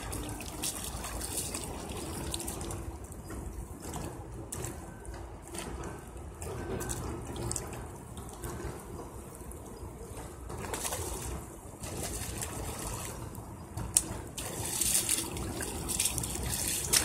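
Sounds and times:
river water splashing: 0.0 - 2.9, 10.6 - 13.4, 14.0 - 17.0.

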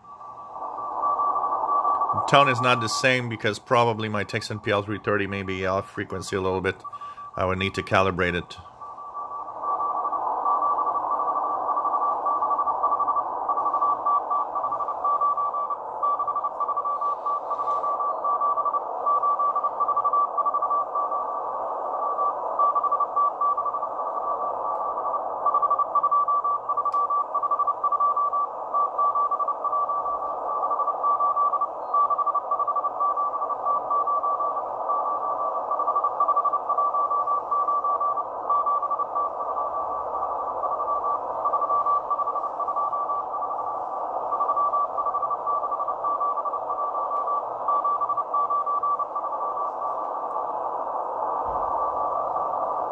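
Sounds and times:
radio band hiss: 0.0 - 52.9
morse code tone: 1.0 - 11.0, 25.6 - 50.0.

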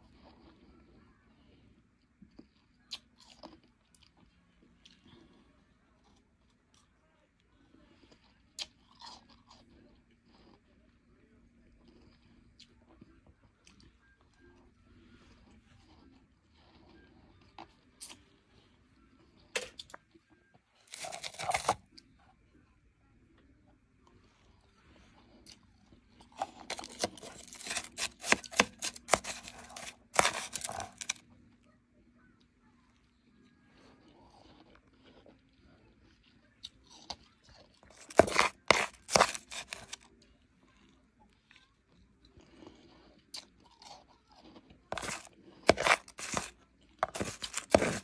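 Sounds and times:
metal spoon scooping crushed ice: 20.9 - 21.8, 26.4 - 31.2, 37.9 - 40.0, 44.9 - 48.0.

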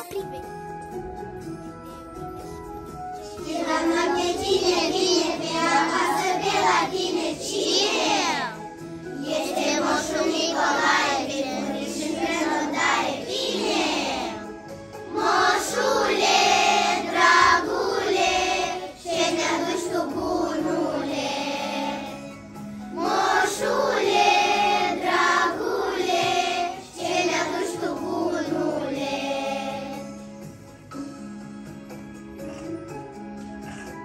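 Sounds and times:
instrumental backing music: 0.0 - 34.0
children singing in chorus: 3.4 - 22.3, 22.9 - 30.1.

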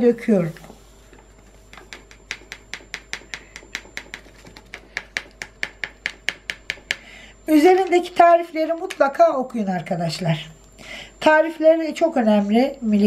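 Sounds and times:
paper sachet tapping: 1.7 - 7.0.

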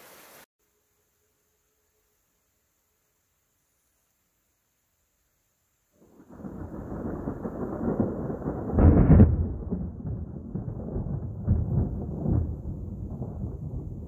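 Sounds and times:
thunder rumbling: 6.0 - 14.0.

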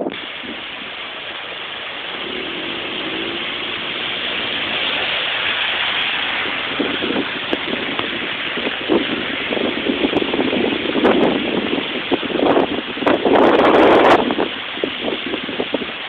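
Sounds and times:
floodwater rushing: 0.0 - 16.0
cars driving through water: 0.1 - 16.0.

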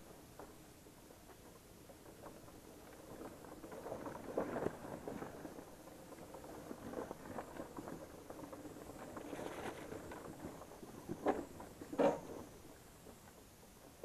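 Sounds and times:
small clicks and rattles: 0.0 - 14.0
tyres crunching over rocks: 0.0 - 14.0.

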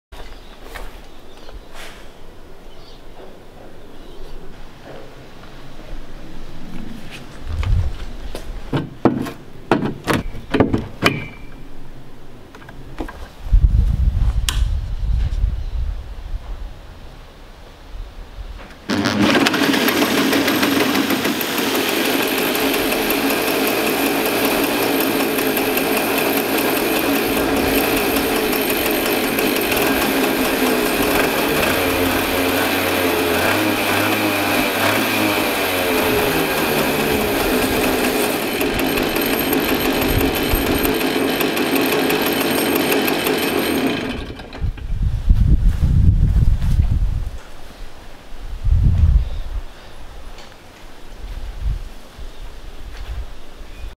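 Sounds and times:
hand drill spinning: 18.9 - 44.9
two-stroke engine running: 18.9 - 44.9.

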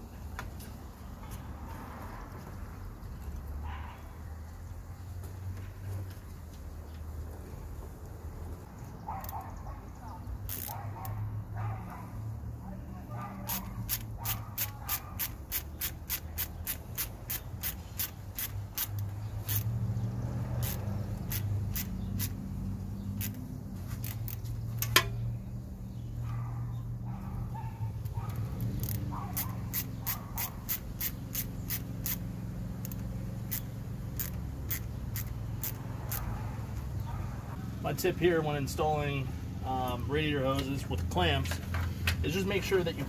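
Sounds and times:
ratcheting screwdriver clicking: 10.5 - 10.8, 13.6 - 19.7, 20.6 - 22.4, 23.2 - 23.4, 28.7 - 32.2, 32.8 - 36.3.

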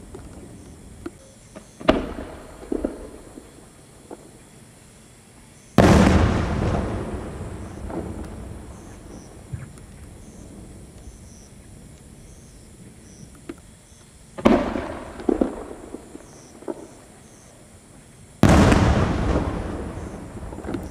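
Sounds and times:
small firework cracks: 0.0 - 4.4, 5.8 - 10.2, 14.4 - 17.4, 18.4 - 20.9
firework booms: 1.5 - 4.3, 5.8 - 11.9, 14.4 - 17.4, 18.4 - 20.9.

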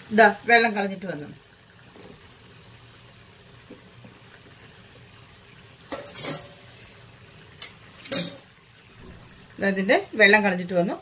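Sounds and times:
metal colander and pot clanking: 5.9 - 6.7, 7.6 - 9.6.

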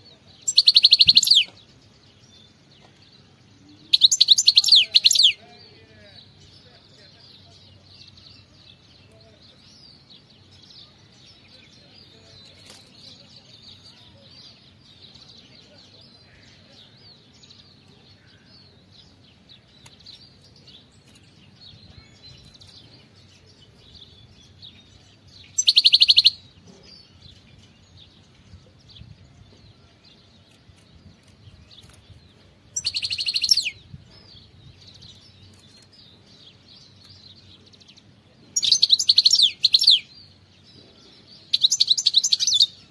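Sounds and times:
faint high twittering: 0.4 - 2.9.

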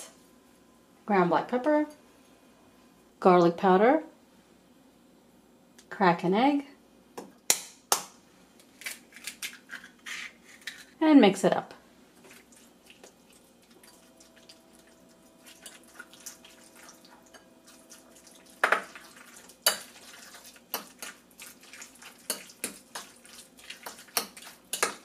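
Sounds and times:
soft wet stirring: 12.1 - 25.0.

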